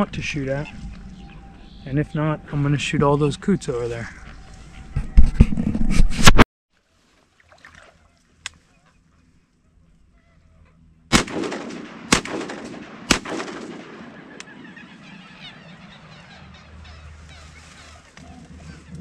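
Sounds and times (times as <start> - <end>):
shotgun shots: 11.1 - 14.6.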